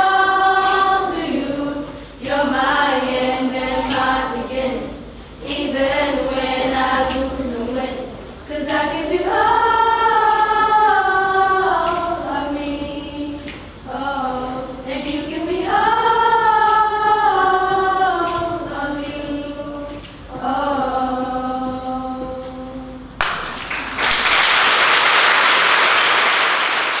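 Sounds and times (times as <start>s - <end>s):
children singing together: 0.0s - 23.6s
audience applause: 23.2s - 27.0s.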